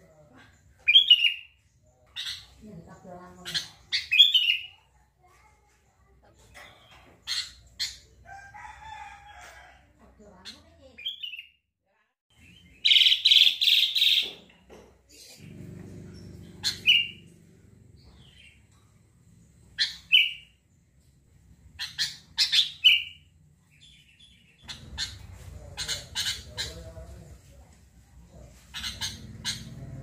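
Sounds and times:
bird chirping: 0.0s - 4.9s, 12.3s - 27.2s.

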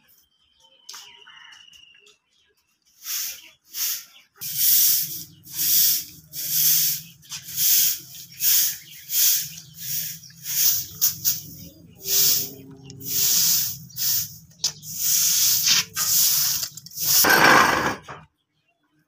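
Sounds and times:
broom sweeping concrete: 2.9s - 18.0s.

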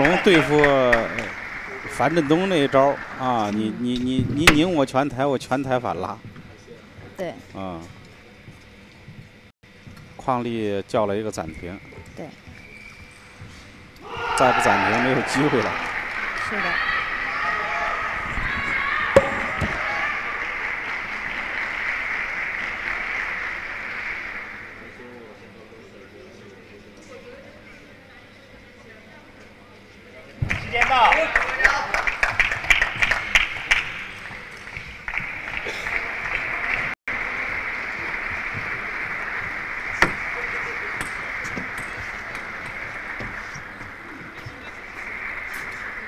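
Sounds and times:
audience applauding: 0.0s - 4.0s, 14.3s - 25.2s, 30.6s - 46.0s
crowd hubbub in hall: 0.0s - 46.0s.

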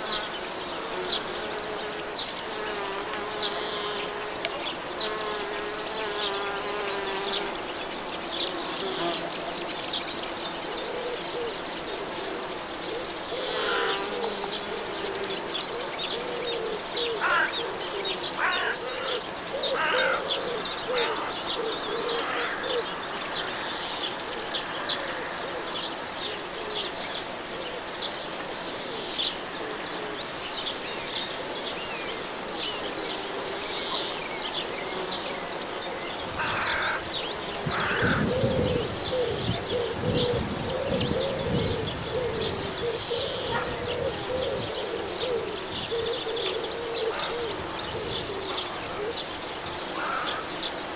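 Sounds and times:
bees buzzing: 0.0s - 15.7s, 26.9s - 50.9s
birds chirping: 0.0s - 50.9s
low wavering insect buzz: 0.0s - 50.9s.

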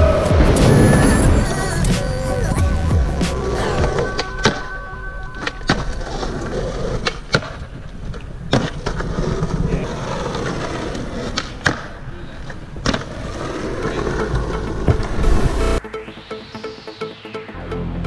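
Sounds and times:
skateboard wheels rolling on asphalt: 5.4s - 15.6s.

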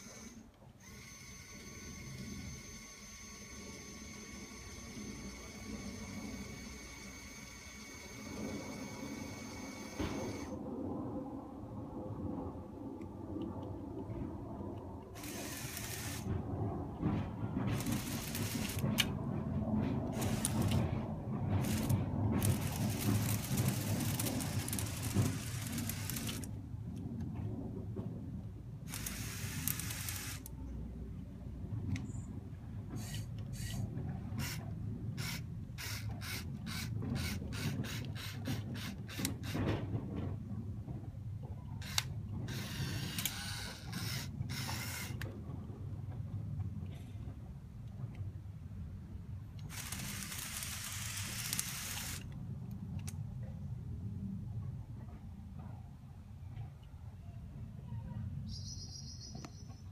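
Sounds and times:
toy crane tracks rattling: 0.0s - 10.5s, 15.2s - 16.3s, 17.6s - 19.1s, 20.0s - 26.5s, 28.9s - 30.5s, 33.0s - 34.6s, 35.2s - 39.7s, 41.8s - 45.2s, 49.6s - 52.3s
plastic gears clicking and ratcheting: 15.2s - 16.3s, 17.7s - 19.1s, 20.1s - 20.9s, 21.6s - 26.5s, 28.9s - 30.5s, 34.4s - 34.6s, 35.2s - 39.7s, 41.8s - 45.3s, 49.6s - 52.4s.

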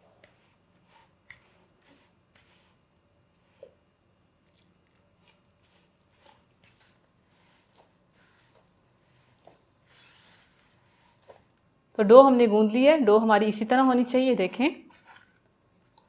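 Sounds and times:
dough squishing: 0.0s - 11.7s.

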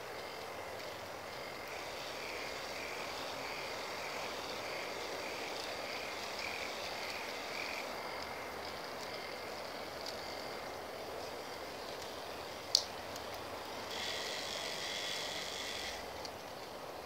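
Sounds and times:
light clicks: 12.7s - 13.4s
toy ride motor whirring: 13.6s - 16.6s.

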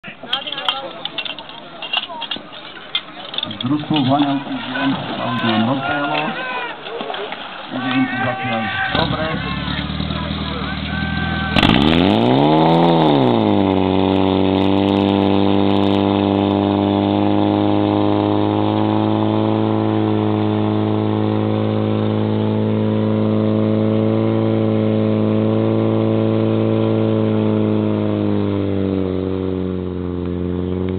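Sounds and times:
pump engine running at high pitch: 7.7s - 30.9s.

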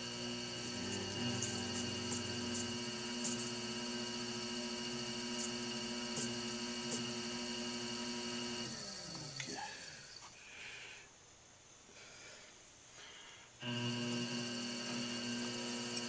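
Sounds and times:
potter's wheel motor whine: 0.0s - 10.2s, 13.6s - 16.0s.

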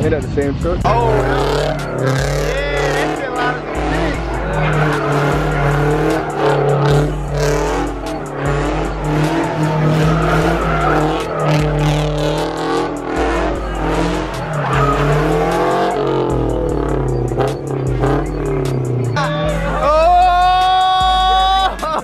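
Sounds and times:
car engine revving: 0.0s - 22.0s
music with heavy bass beat: 0.0s - 22.0s
tyres squealing: 0.9s - 22.0s.

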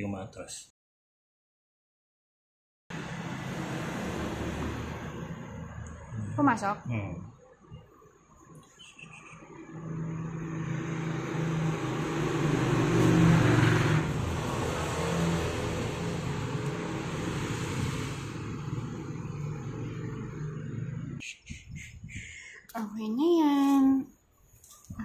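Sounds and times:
vehicle passing by: 2.9s - 7.0s, 9.3s - 21.2s.

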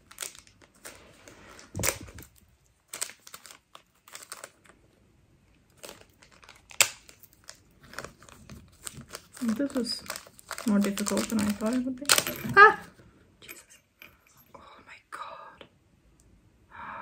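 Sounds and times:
plastic packaging crinkling: 0.0s - 4.9s, 5.7s - 13.0s.

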